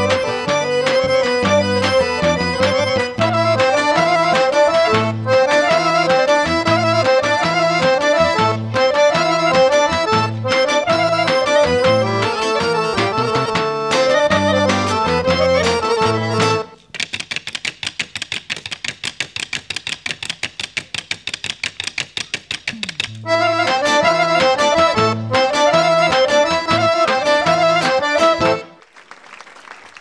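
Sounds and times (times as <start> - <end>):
accordion folk dance tune: 0.0 - 28.9
wooden sticks tapping: 16.8 - 23.3.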